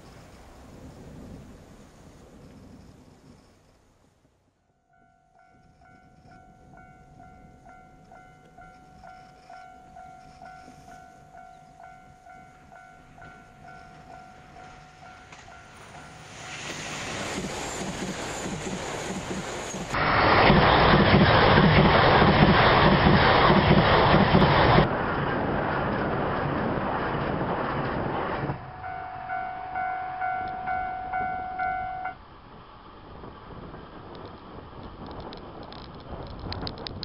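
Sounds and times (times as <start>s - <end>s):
diesel train passing: 0.0s - 35.6s
faint dinging bell: 4.7s - 16.5s, 28.6s - 32.2s.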